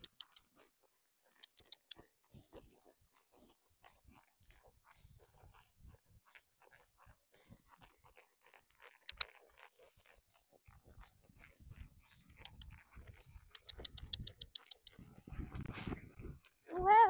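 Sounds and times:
sharp clicks: 0:00.0 - 0:00.4, 0:01.4 - 0:02.0, 0:13.6 - 0:15.0
hooves crunching at a trot: 0:00.0 - 0:16.7.

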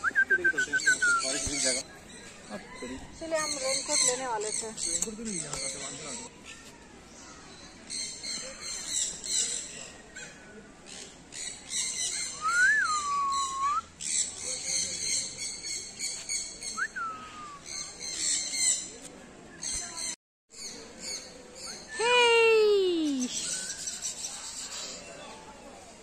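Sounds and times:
whistled bird calls: 0:00.0 - 0:01.8, 0:11.7 - 0:18.8
birds chirping: 0:00.0 - 0:19.0.

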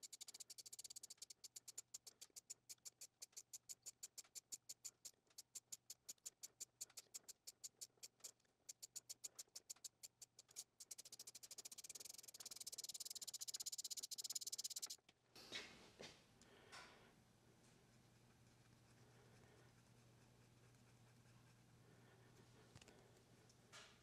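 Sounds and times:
hand ratchet clicking: 0:00.0 - 0:15.0.

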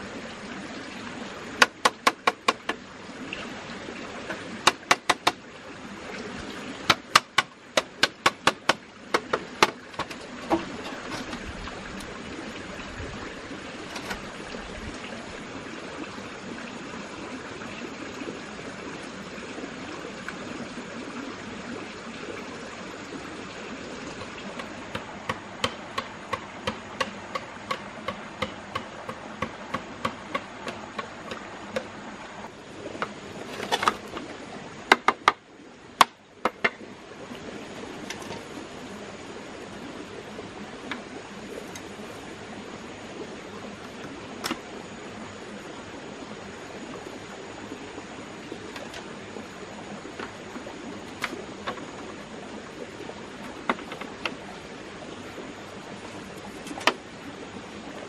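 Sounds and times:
stream rushing: 0:00.0 - 0:58.0
tool tapping bamboo: 0:01.6 - 0:02.8, 0:04.3 - 0:05.4, 0:06.9 - 0:11.4, 0:24.2 - 0:31.9, 0:34.9 - 0:35.4, 0:36.0 - 0:36.8.

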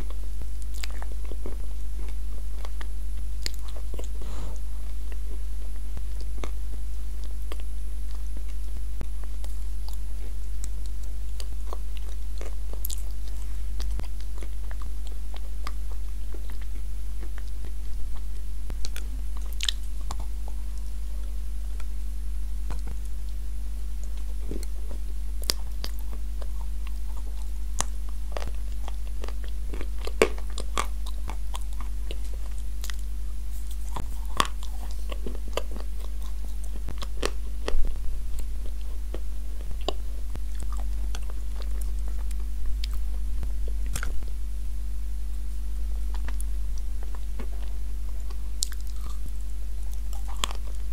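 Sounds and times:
crunchy chewing: 0:00.0 - 0:50.9
low hum: 0:00.0 - 0:50.9.

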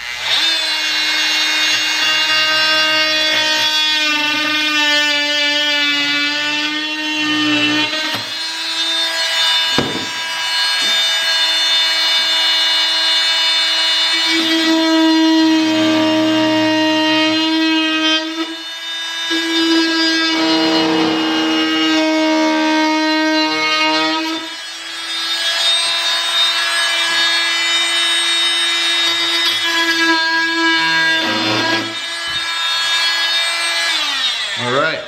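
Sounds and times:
oscillating multi-tool whine: 0:00.0 - 0:34.9
blade cutting board rasping: 0:19.3 - 0:22.0.

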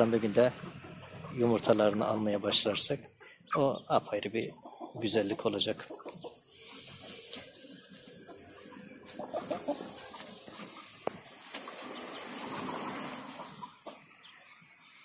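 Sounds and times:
hens clucking softly: 0:00.4 - 0:15.0
rustling in soil: 0:05.6 - 0:15.0.

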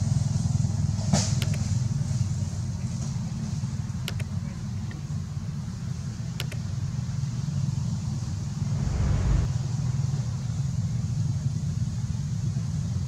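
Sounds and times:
steady low rumble: 0:08.5 - 0:09.6
whoosh: 0:08.5 - 0:09.6.

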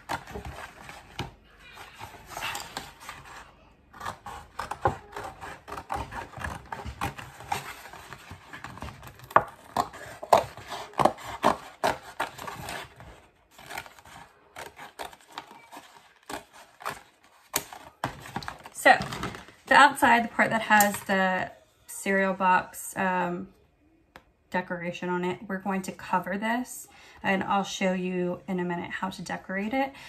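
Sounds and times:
scissors cutting cardboard: 0:00.0 - 0:19.3
cardboard rustling: 0:00.0 - 0:20.3.

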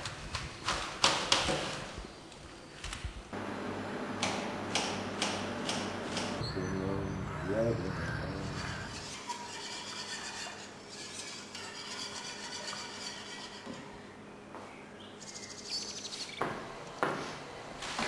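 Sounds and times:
wire whisk stirring in steel pan: 0:08.6 - 0:13.7.

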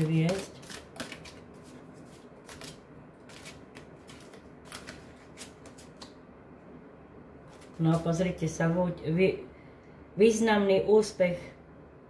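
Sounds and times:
cards being shuffled: 0:00.0 - 0:06.2, 0:07.5 - 0:08.2.

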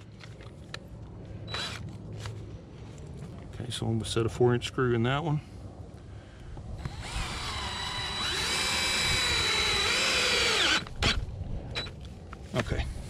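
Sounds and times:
cordless drill motor whine: 0:01.5 - 0:01.8, 0:06.8 - 0:11.9.

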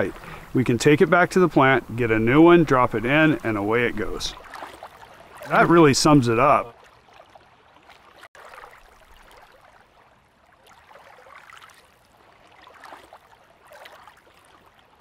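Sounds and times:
faint lapping water: 0:00.0 - 0:15.0.

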